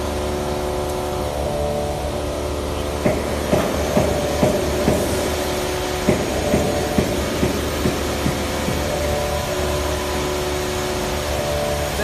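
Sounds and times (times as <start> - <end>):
workshop machinery humming: 0.0 - 12.0
evenly spaced knocks: 6.0 - 9.2.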